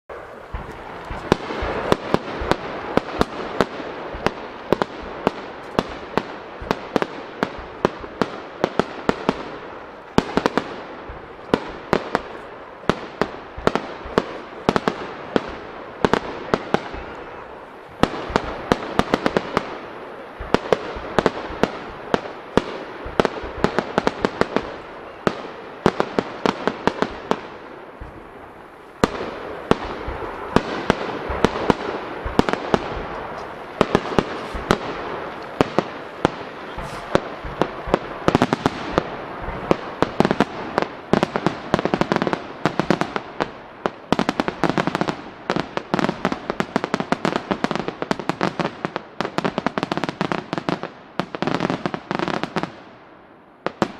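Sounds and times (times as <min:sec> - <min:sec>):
firework shells bursting: 0:00.1 - 0:19.8, 0:25.8 - 0:43.5
fireworks crackling: 0:00.1 - 0:53.9.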